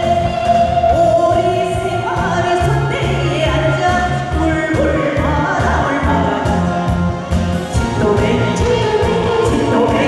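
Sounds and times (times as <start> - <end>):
backing music with pulsing beat: 0.0 - 10.0
man and woman singing duet: 7.8 - 10.0.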